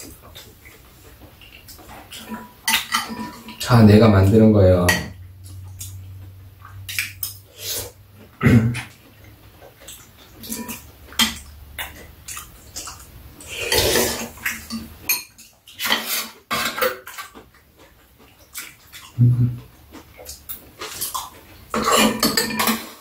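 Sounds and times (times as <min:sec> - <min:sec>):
utensils clinking on ceramic bowls: 0:21.7 - 0:23.0.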